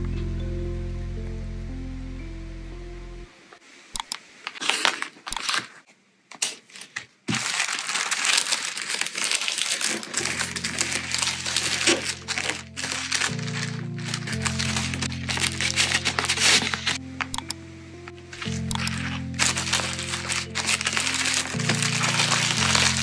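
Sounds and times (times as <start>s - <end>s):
tissue paper crinkling: 4.6s - 5.8s, 6.7s - 17.3s, 18.2s - 23.0s.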